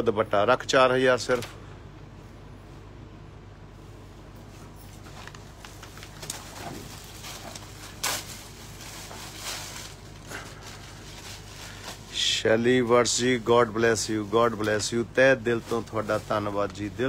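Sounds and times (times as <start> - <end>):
steady low hum: 0.0 - 17.0
cloth rustling: 4.4 - 12.2.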